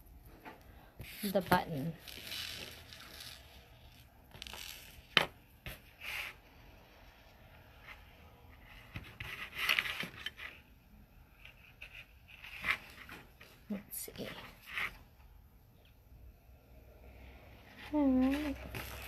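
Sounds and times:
beads scraping and rustling: 0:01.0 - 0:05.2, 0:17.8 - 0:19.0.

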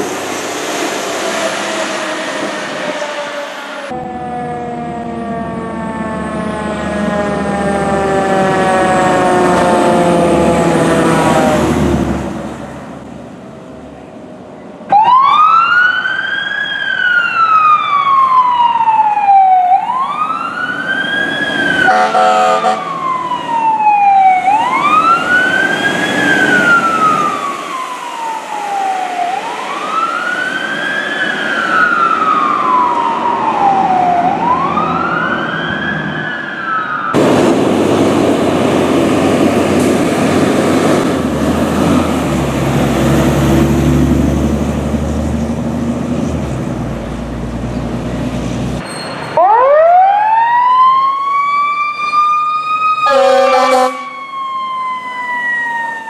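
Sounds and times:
electronic wail siren: 0:02.2 - 0:11.8, 0:14.9 - 0:37.2, 0:49.4 - 0:56.0
siren falling in pitch: 0:02.3 - 0:11.8, 0:14.9 - 0:37.2, 0:49.4 - 0:56.0
horn blast: 0:21.9 - 0:22.9, 0:53.0 - 0:54.1.

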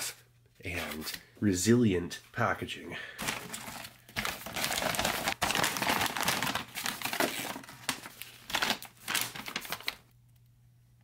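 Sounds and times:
plastic packaging crinkling: 0:03.2 - 0:10.1.

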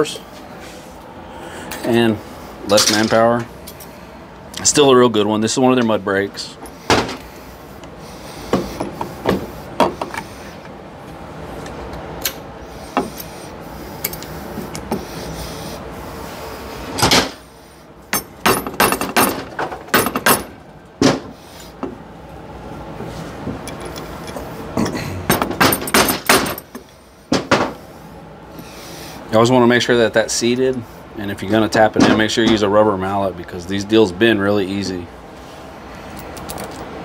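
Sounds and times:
steady background hum: 0:00.0 - 0:37.0
metal clinks and knocks: 0:18.1 - 0:20.6, 0:23.6 - 0:26.8, 0:36.1 - 0:36.9.

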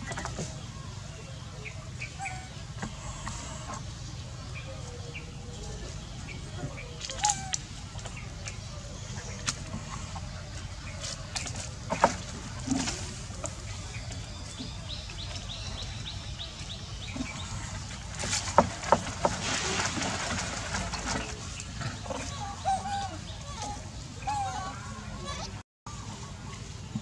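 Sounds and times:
steady low rumble: 0:00.0 - 0:18.9.

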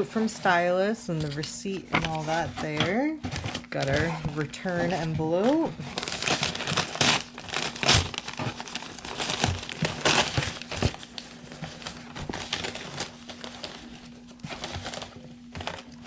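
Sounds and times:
packing paper crinkling: 0:03.2 - 0:16.0.

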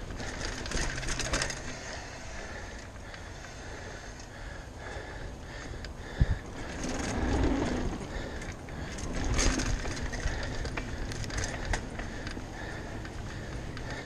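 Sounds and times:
bike rattling and clicking: 0:00.0 - 0:14.0
tyre and wind rumble: 0:05.3 - 0:14.0.

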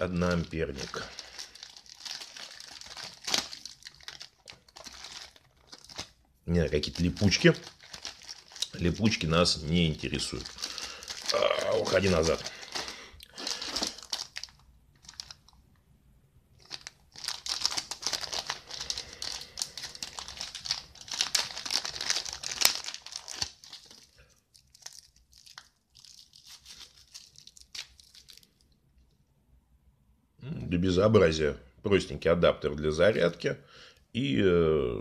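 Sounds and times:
plastic bags crinkling: 0:00.0 - 0:15.6, 0:16.6 - 0:28.8
plastic film peeling: 0:00.0 - 0:15.6, 0:16.6 - 0:28.8.

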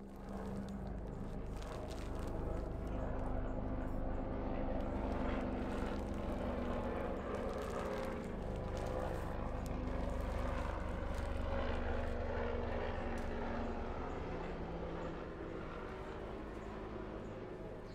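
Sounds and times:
plastic bag crinkling: 0:00.0 - 0:03.0, 0:04.8 - 0:11.5.

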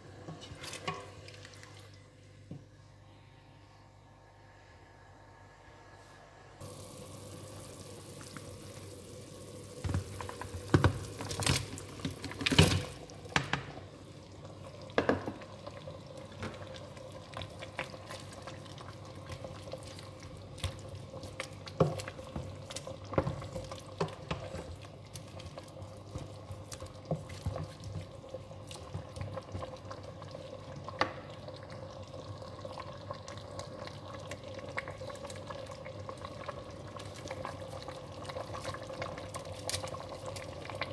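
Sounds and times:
liquid cooking: 0:00.0 - 0:02.2, 0:06.6 - 0:40.9
steady hum: 0:01.2 - 0:10.5
knocks and clatters against pot: 0:15.0 - 0:15.4.

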